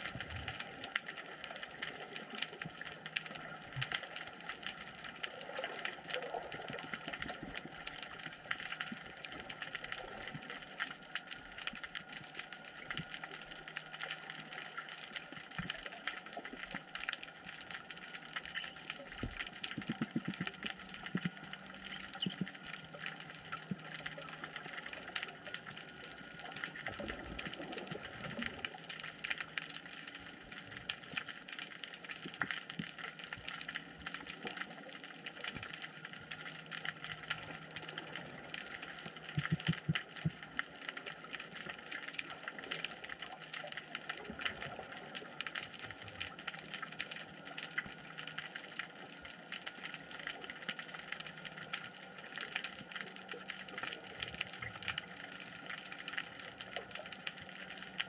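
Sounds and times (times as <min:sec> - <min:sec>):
crackle of tiny clicks: 0:00.0 - 0:58.0.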